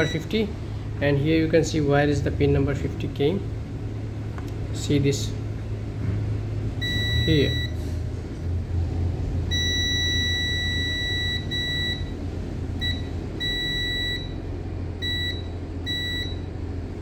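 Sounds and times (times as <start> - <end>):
multimeter continuity beeps: 0.0 - 0.4, 6.8 - 7.8, 9.5 - 12.1, 12.8 - 14.4, 15.0 - 16.5.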